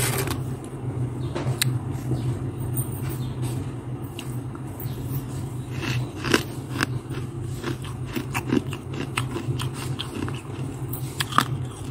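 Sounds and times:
steady low hum: 0.0s - 11.9s
crunchy chewing of frost: 5.2s - 11.9s.

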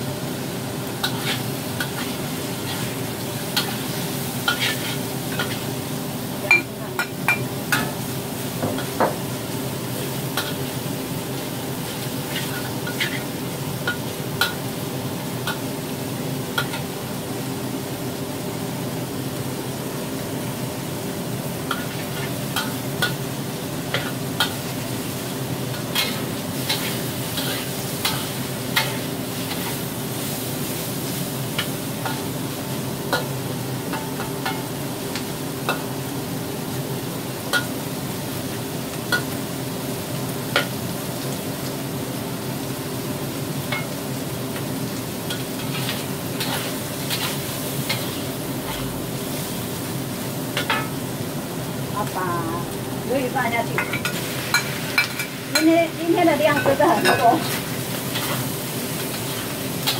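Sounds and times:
meat and tofu sizzling in wok: 0.0s - 59.9s
spatula clicking and scraping pan: 1.0s - 5.7s, 12.2s - 14.6s, 16.6s - 16.9s, 21.7s - 23.3s, 23.9s - 24.6s, 25.7s - 29.8s, 33.9s - 35.9s, 45.3s - 49.0s, 56.5s - 59.9s.

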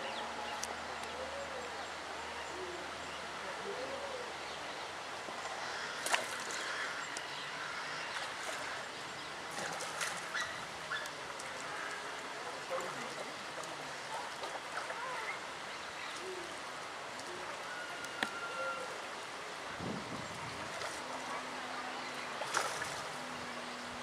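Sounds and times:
steady background noise: 0.0s - 24.0s.

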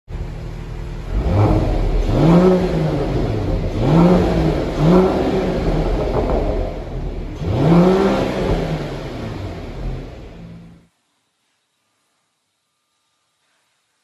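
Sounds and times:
car engine revving: 0.1s - 10.9s.

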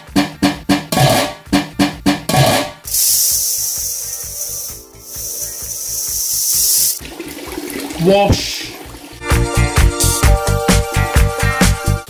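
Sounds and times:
drum-like music beats: 0.0s - 12.0s
rice pouring into metal bowl: 2.9s - 9.1s.

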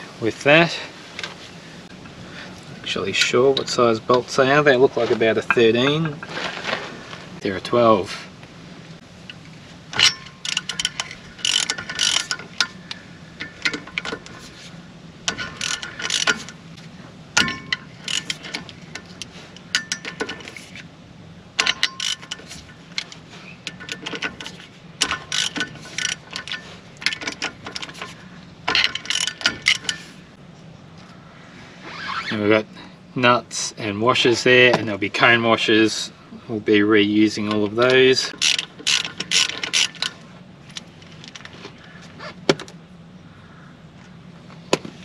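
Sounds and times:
socket ratchet clicking: 10.0s - 14.4s, 15.3s - 16.6s, 21.6s - 28.1s, 28.7s - 30.1s, 38.4s - 40.9s.

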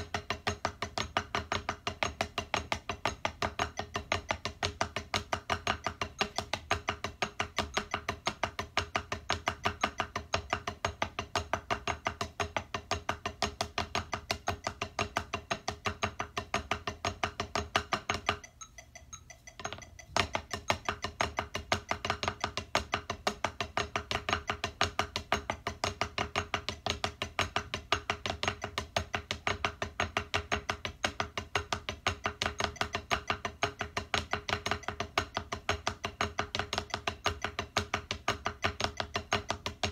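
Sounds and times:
drumsticks on practice pad: 14.3s - 24.4s.

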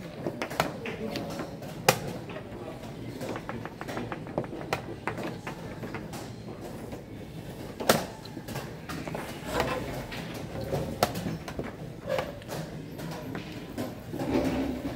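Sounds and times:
chess pieces knocking on board: 3.1s - 6.3s.

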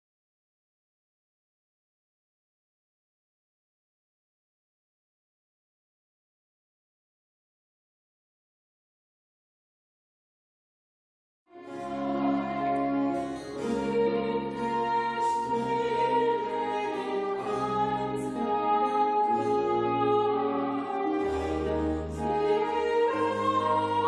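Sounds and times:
small instrumental ensemble: 11.5s - 24.0s
woman singing operatic: 11.7s - 24.0s.

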